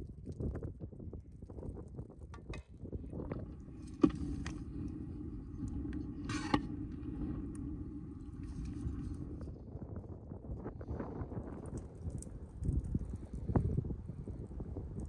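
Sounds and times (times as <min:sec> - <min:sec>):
faint steady hum: 0:02.4 - 0:10.0.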